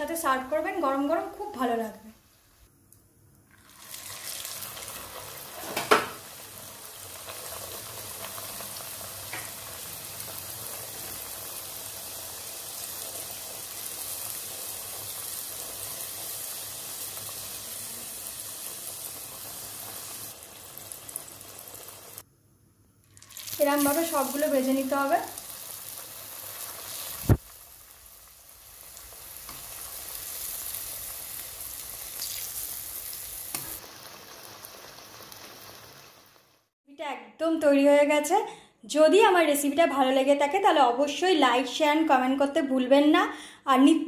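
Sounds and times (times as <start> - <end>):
food sizzling in hot oil: 3.5 - 22.3, 23.1 - 36.8.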